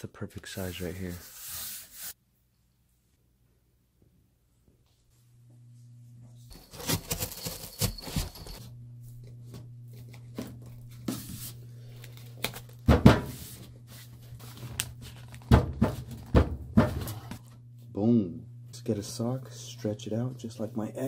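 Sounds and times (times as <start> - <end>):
cardboard tearing: 6.5 - 8.6
cardboard knocking and crackling: 15.3 - 17.3.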